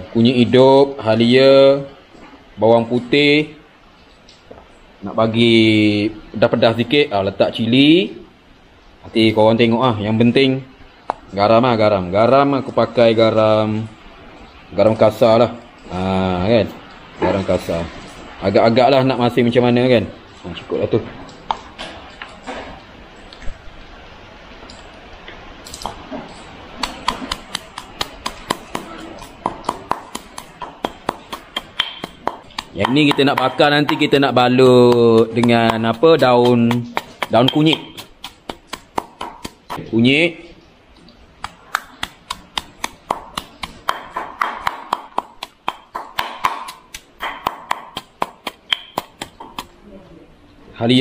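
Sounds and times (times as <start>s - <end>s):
knife chopping: 26.8s - 39.8s, 41.4s - 49.8s
mortar and pestle pounding: 26.8s - 39.8s, 41.4s - 49.8s.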